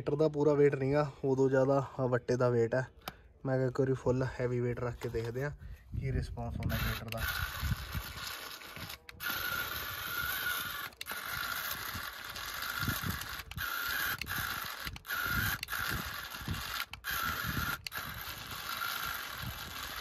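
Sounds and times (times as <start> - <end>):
toy tractor motor whirring: 6.1 - 20.0.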